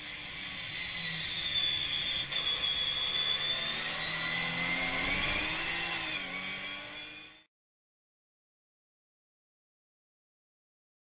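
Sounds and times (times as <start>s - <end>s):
racing car engines at high revs: 2.1s - 7.4s.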